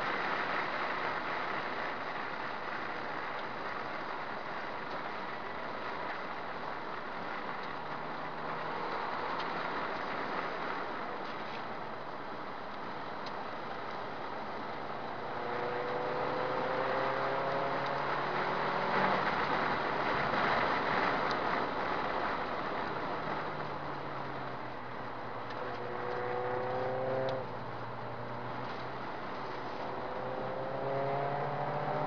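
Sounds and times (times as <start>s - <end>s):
wind and road noise: 0.0s - 32.0s
car engine accelerating hard: 7.2s - 11.0s, 14.8s - 32.0s.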